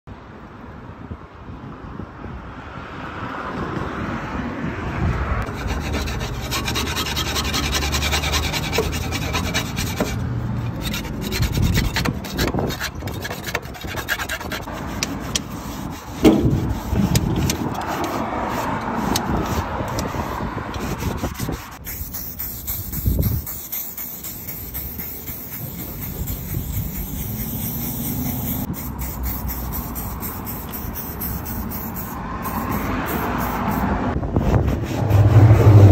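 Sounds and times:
scraper scraping metal: 5.4 - 33.6.

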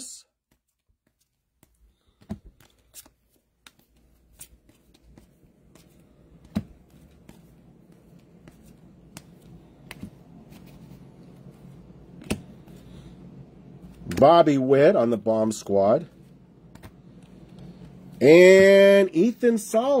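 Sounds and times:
trading cards flipped by hand: 0.4 - 13.1, 16.2 - 18.2.

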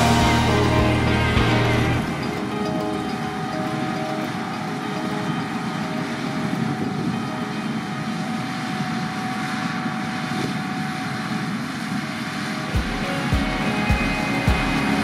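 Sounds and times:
drum beat thumping: 0.0 - 2.1, 12.8 - 15.0
combine harvester drone: 0.0 - 15.0.

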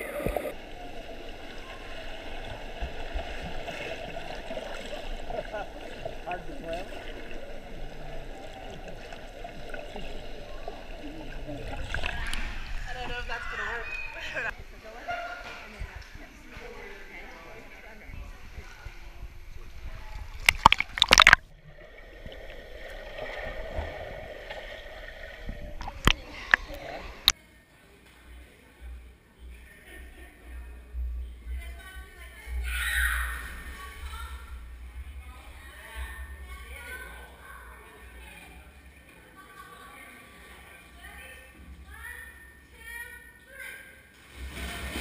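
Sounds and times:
warbling bubble sounds: 0.0 - 6.3, 20.3 - 27.3
water splashing: 0.0 - 14.5, 18.4 - 27.4, 44.2 - 45.0
muffled underwater wash: 0.0 - 15.0, 15.6 - 27.3.

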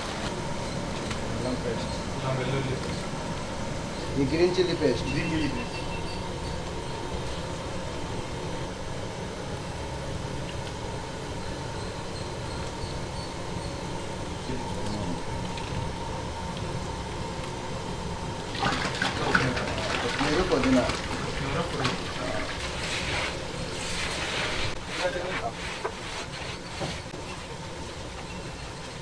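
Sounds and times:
faint constant hum: 0.0 - 29.0
low rumbling background noise: 0.0 - 29.0.

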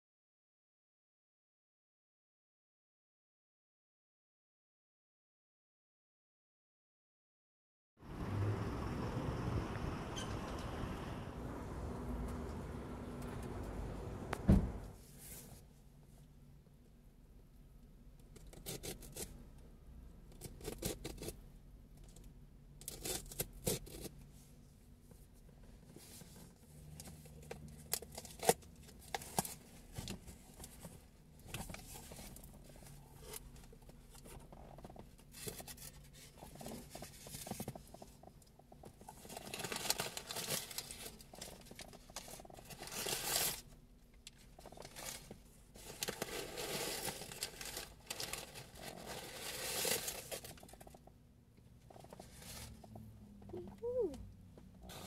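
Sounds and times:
packing material rustling: 39.1 - 43.7, 44.6 - 50.9.

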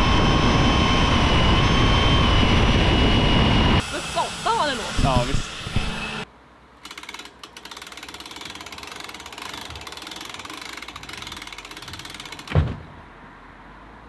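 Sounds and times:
low hum: 0.0 - 6.2
rapid mechanical clicking: 6.8 - 12.6
loud thump: 12.5 - 13.0.

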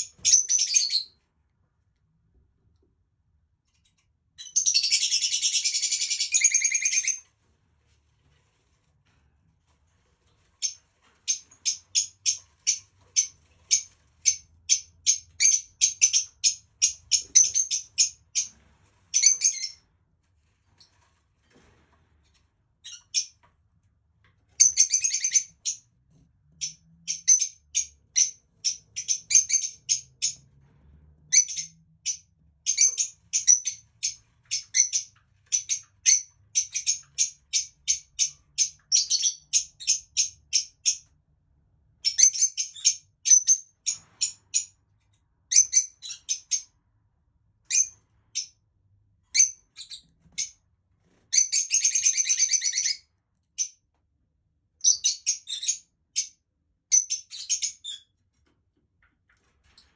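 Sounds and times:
bird chirping: 0.0 - 1.2, 4.4 - 7.2, 10.6 - 18.5, 24.6 - 25.9, 26.6 - 30.4, 31.3 - 41.1, 49.3 - 50.6, 51.3 - 53.8, 54.8 - 58.2.

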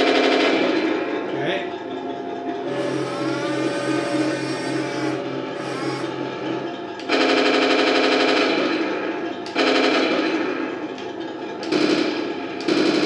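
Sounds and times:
toy machine-gun sound effect: 2.7 - 8.4.

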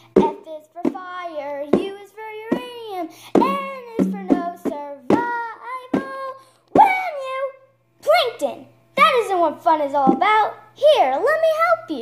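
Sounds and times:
child singing: 0.1 - 7.6.

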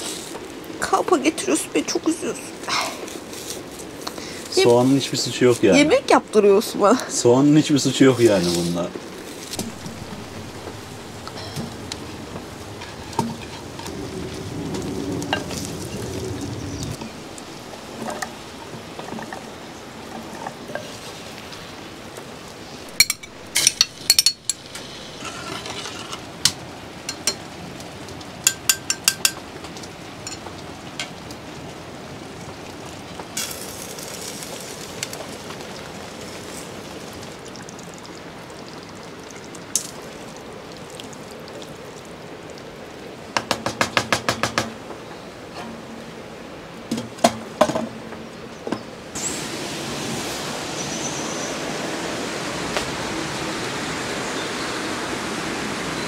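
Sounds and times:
food sizzling: 0.0 - 42.8, 49.1 - 56.0
metal utensils clinking on pot: 23.0 - 26.2, 27.1 - 27.4, 28.4 - 29.4, 30.2 - 30.5.

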